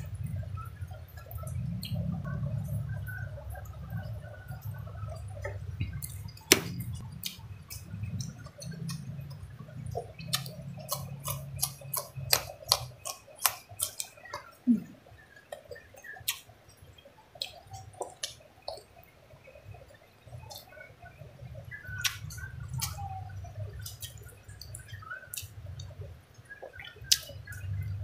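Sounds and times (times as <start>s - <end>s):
low hum: 0.0s - 12.3s
sharp wet clicks: 0.9s - 14.6s, 15.4s - 19.0s, 19.9s - 28.0s
person chewing food: 5.5s - 14.6s.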